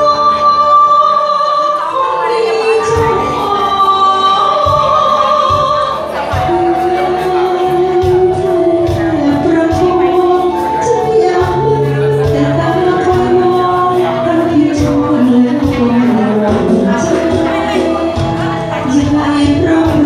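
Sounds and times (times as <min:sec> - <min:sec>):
woman singing into microphone: 0:00.0 - 0:20.0
backing music with bass and beat: 0:04.3 - 0:10.8, 0:11.4 - 0:20.0.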